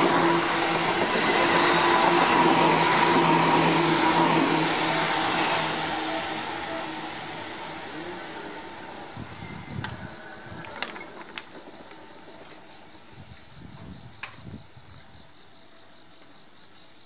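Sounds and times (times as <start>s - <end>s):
electric train running: 0.0s - 13.0s.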